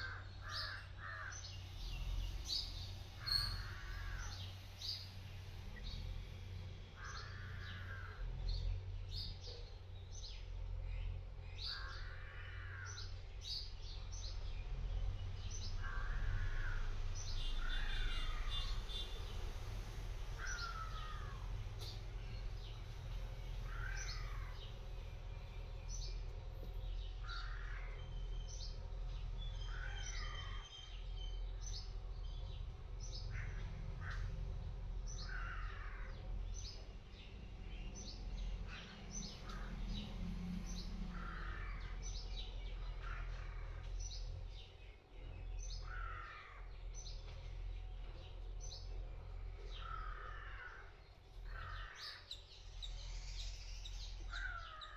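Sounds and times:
crows cawing: 0.0 - 1.5, 3.2 - 4.6, 6.9 - 8.4, 11.6 - 13.2, 15.8 - 16.9, 17.5 - 18.8, 20.4 - 21.6, 23.6 - 24.7, 27.2 - 28.0, 29.6 - 30.6, 33.3 - 34.4, 35.2 - 36.2, 41.1 - 42.1, 42.8 - 44.0, 45.8 - 46.7, 49.7 - 52.4, 54.0 - 54.9
birds chirping: 0.0 - 19.4, 20.2 - 54.9
low outdoor rumble: 0.0 - 54.9.

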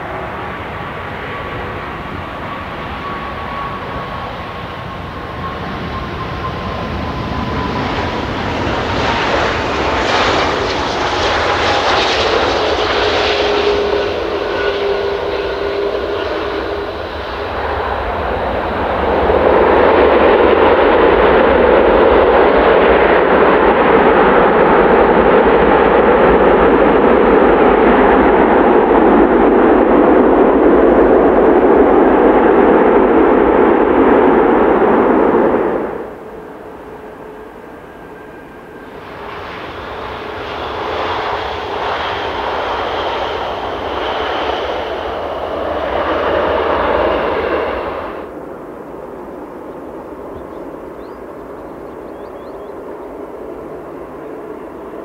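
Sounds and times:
jet airliner engines landing: 0.0 - 55.0
jet engine reverse thrust roar: 0.0 - 55.0.

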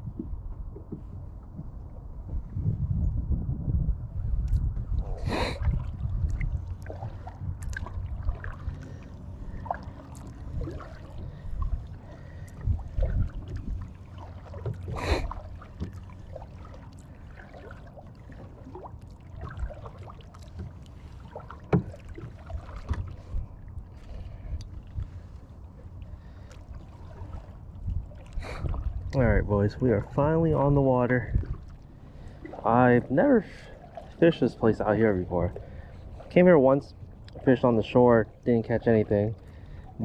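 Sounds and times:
steady low rumble: 0.0 - 40.0
loud water splashes: 5.0 - 23.3.

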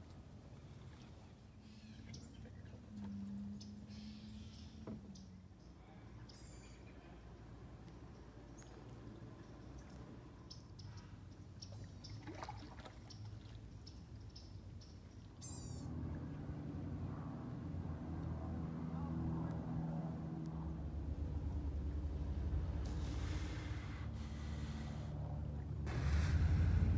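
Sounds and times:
faint songbirds chirping: 0.5 - 17.0
manatee exhaling: 22.8 - 26.9.

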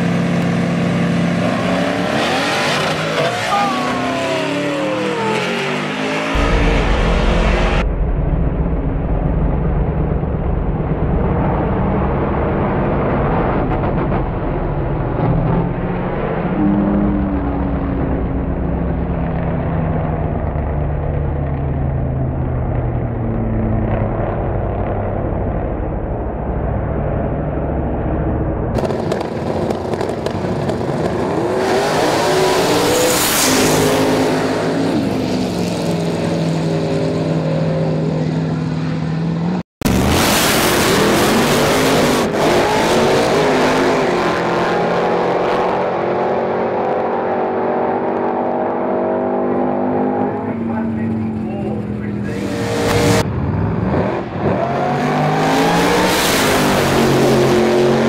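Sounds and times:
racing car engines at full throttle: 0.0 - 8.0, 8.6 - 58.0.

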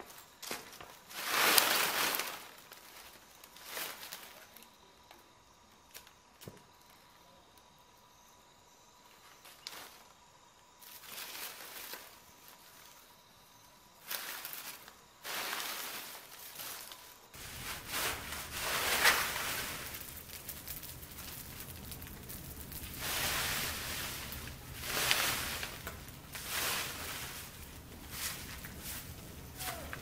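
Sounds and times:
dry leaves and sticks rustling: 0.0 - 7.0, 9.1 - 30.0
bonfire crackling: 0.0 - 30.0
rake scraping debris: 0.1 - 4.5, 14.0 - 30.0.

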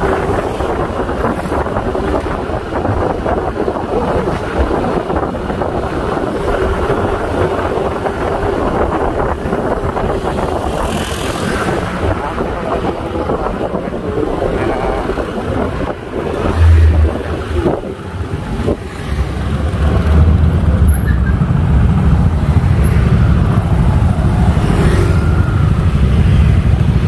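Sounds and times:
low rumble on microphone: 11.7 - 18.9.

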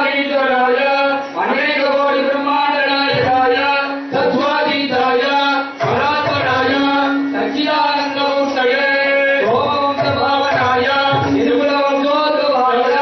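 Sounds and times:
men singing devotional chant: 0.0 - 13.0.

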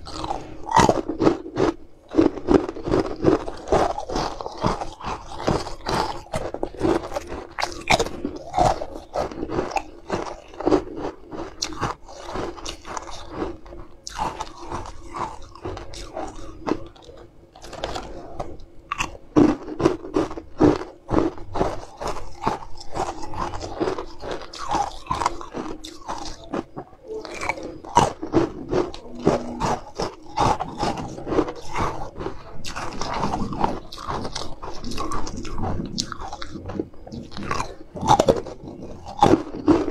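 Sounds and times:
person crunching ice: 0.0 - 39.9.

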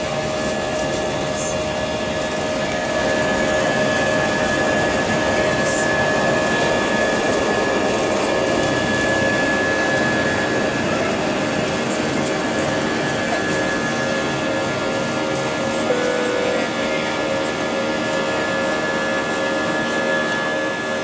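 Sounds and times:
jet engine rush in cabin: 0.0 - 21.0.

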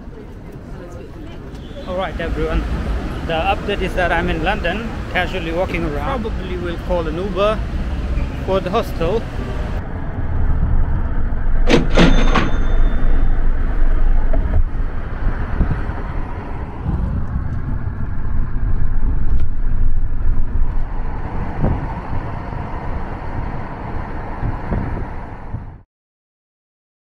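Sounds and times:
car road noise rumble: 0.0 - 25.8.

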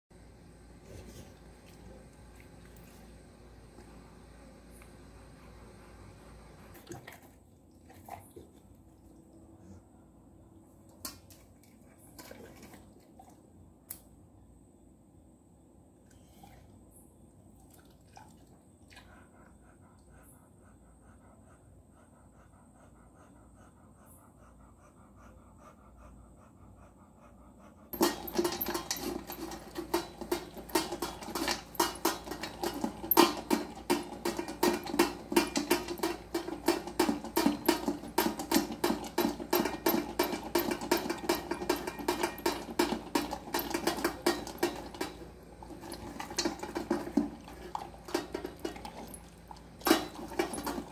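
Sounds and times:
dog crunching and chewing fish: 27.9 - 50.9.

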